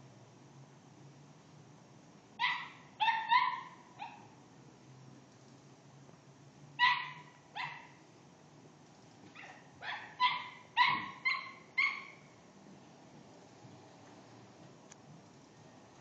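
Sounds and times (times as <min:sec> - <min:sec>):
dog barking: 0:02.4 - 0:04.4, 0:06.8 - 0:08.0, 0:09.3 - 0:12.3.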